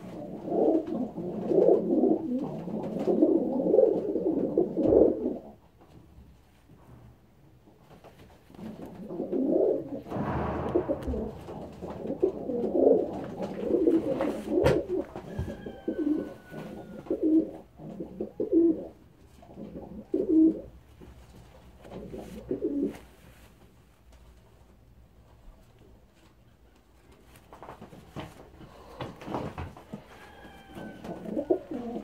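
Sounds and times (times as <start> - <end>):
pigeon cooing: 0.0 - 5.6, 8.7 - 20.8, 21.8 - 23.0, 28.6 - 32.0.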